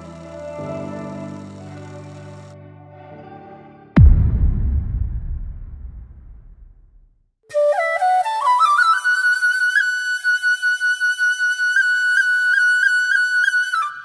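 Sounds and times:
flute melody: 7.5 - 14.0.

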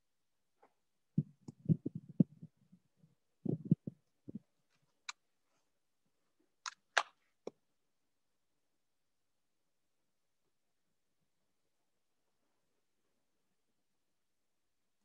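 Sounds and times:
soft low thumps and clicks: 1.2 - 2.7, 3.4 - 4.5.

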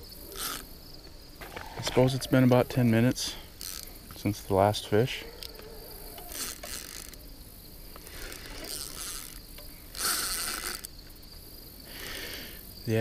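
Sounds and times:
insect chorus: 0.0 - 13.0
fishing reel cranking: 0.4 - 0.6, 3.6 - 3.9, 6.1 - 7.3, 8.0 - 10.9.

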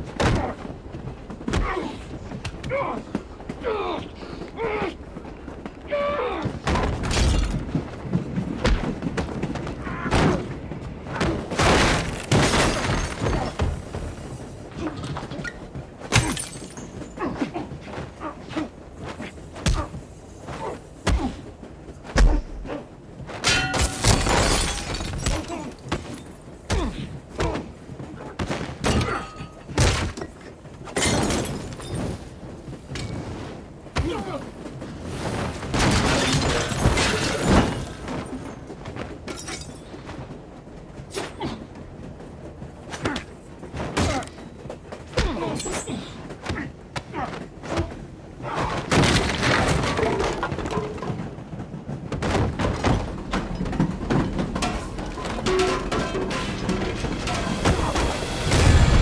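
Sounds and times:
people grunting: 1.5 - 5.1, 5.8 - 7.0, 17.2 - 23.0, 25.2 - 29.6, 34.0 - 34.7, 42.9 - 44.5, 45.1 - 49.0
glass shattering: 16.2 - 17.0, 23.4 - 26.3.

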